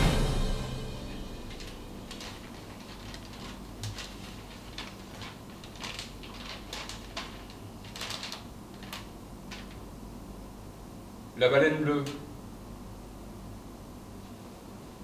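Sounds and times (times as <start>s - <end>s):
faint low hum: 0.0s - 15.0s
paper crackling rustles: 1.2s - 10.0s.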